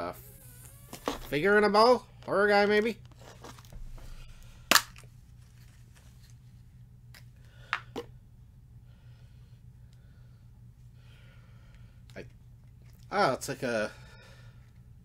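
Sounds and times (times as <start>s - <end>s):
plastic capsule snapping open: 4.7s - 5.1s.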